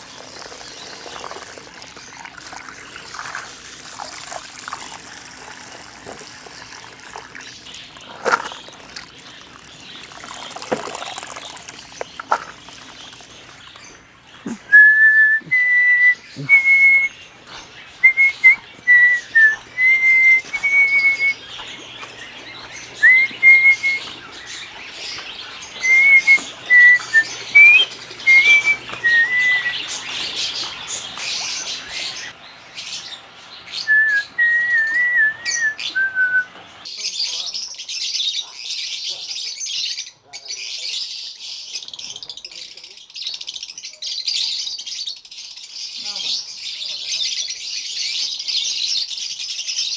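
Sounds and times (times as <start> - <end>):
faint trickling water: 0.0 - 14.8, 15.5 - 37.8
lovebirds shrill chirping: 16.1 - 42.2
bird whistling clear notes: 23.0 - 24.1, 25.8 - 29.9.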